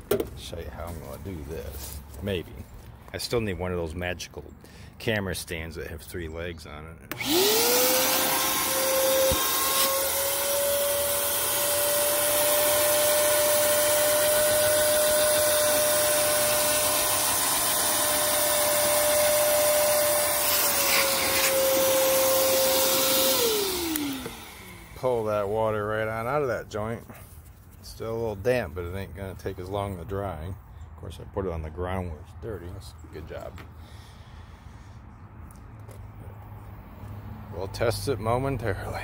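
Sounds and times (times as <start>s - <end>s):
shop vacuum motor whine: 7.1s - 25.5s.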